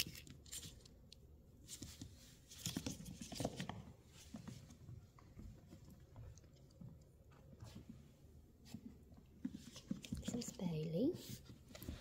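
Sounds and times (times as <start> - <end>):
puppy paws clicking on wooden floor: 0.0 - 12.0.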